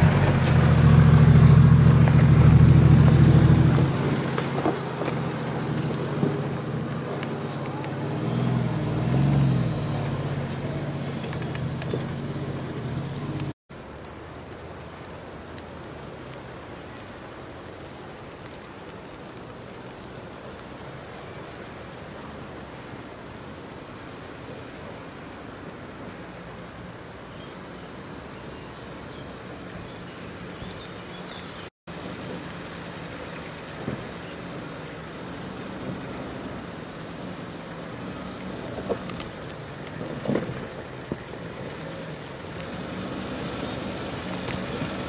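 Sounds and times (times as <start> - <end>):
suv engine at low revs: 0.0 - 13.6, 28.7 - 45.0
steady hiss: 13.2 - 45.0.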